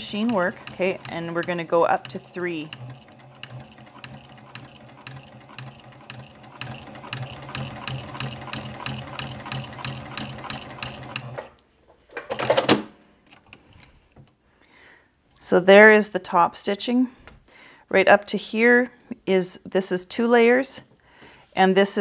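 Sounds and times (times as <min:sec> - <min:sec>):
sewing needle clicking: 0:00.0 - 0:11.5
sewing machine motor hum: 0:00.0 - 0:11.6.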